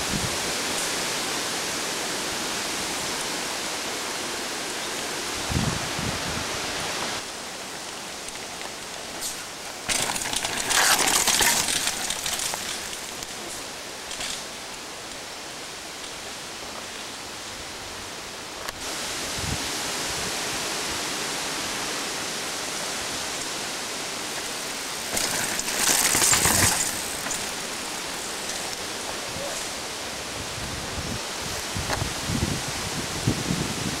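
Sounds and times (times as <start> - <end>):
wind hissing on microphone: 0.0 - 3.2, 5.2 - 7.2, 18.8 - 21.7, 25.1 - 34.0
rustling among trees: 0.0 - 19.6, 21.6 - 34.0.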